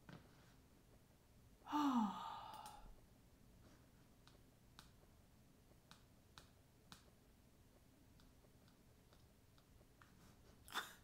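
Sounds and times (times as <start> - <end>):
falling vocal hum: 1.7 - 2.9
computer mouse clicks: 4.2 - 5.0, 5.8 - 7.2.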